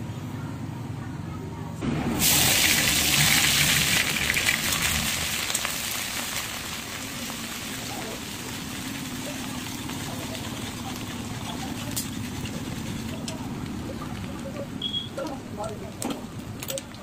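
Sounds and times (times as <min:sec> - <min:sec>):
hot oil sizzling and frying: 0:01.8 - 0:16.5
spatula stirring: 0:08.2 - 0:13.9.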